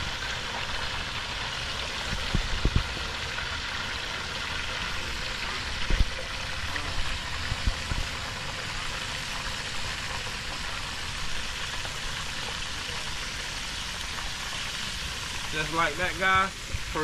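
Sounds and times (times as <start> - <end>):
fish frying in oil: 0.0 - 17.0
gas burner rumble: 0.0 - 17.0.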